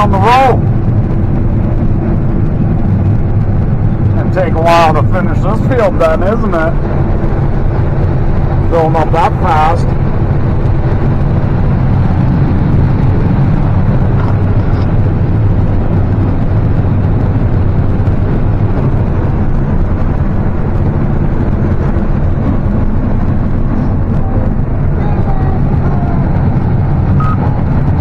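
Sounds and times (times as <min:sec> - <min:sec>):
combine harvester drone: 0:00.0 - 0:28.0.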